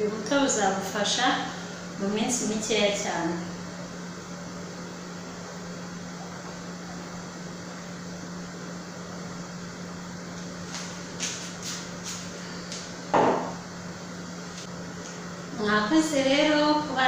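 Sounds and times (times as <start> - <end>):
steady low hum: 0.0 - 17.0
knock on countertop: 13.1 - 13.6.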